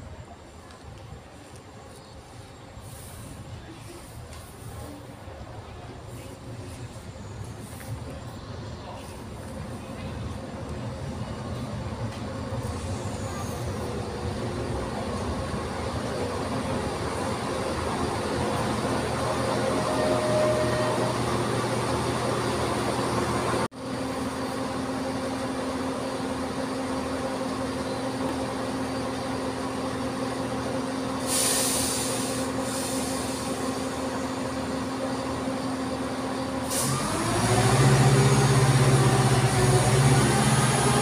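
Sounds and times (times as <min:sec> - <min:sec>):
diesel train engines humming: 0:00.0 - 0:41.0
air hisses: 0:31.2 - 0:33.6.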